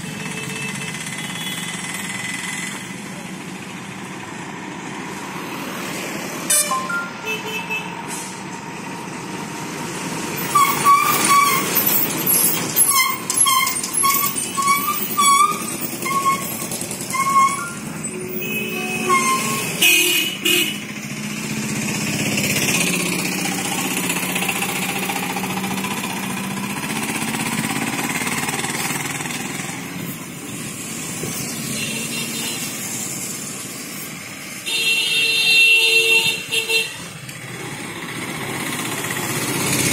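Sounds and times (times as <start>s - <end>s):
bus engine running: 0.0s - 34.6s, 36.2s - 39.9s
motorcycles passing: 0.0s - 35.2s, 36.2s - 39.9s
vehicle horn toots: 6.5s - 8.0s, 12.9s - 20.8s, 34.7s - 37.0s.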